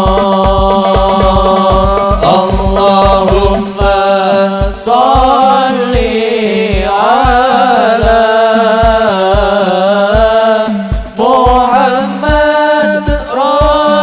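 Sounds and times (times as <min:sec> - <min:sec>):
person singing melismatic line: 0:00.0 - 0:06.1
deep bass drum beat: 0:00.0 - 0:09.6, 0:10.2 - 0:13.9
frame drums: 0:00.0 - 0:14.0.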